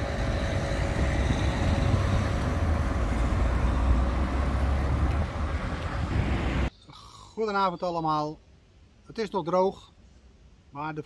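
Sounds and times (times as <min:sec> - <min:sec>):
cars passing: 0:00.0 - 0:06.7
motor scooter passing: 0:00.0 - 0:06.7.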